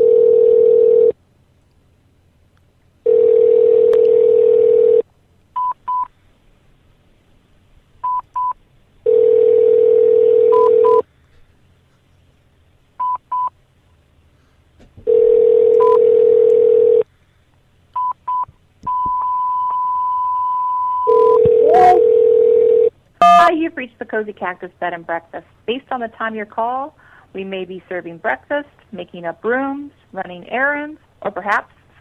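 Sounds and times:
telephone ringback tone: 0:00.0 - 0:01.2, 0:03.1 - 0:05.0, 0:09.1 - 0:11.0, 0:15.1 - 0:17.0, 0:18.9 - 0:23.5
long high beep: 0:18.9 - 0:22.1
short high beeps: 0:23.2 - 0:23.5.

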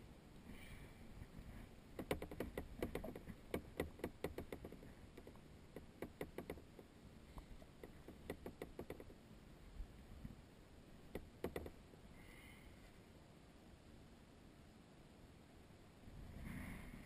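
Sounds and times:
water and paddle clicks: 0:02.0 - 0:09.2, 0:11.1 - 0:11.8.

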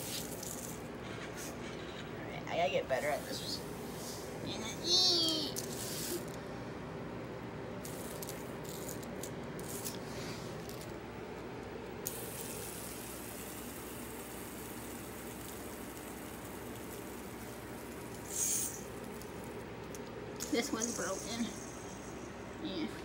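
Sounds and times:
fidget spinner whirring rattle: 0:00.0 - 0:06.4, 0:07.8 - 0:22.9
fidget spinner clicks: 0:12.0 - 0:21.2.

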